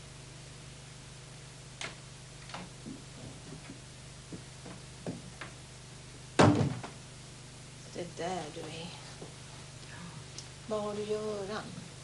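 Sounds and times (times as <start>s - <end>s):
low electrical hum: 0.0s - 12.0s
loud sharp knock: 6.4s - 7.0s.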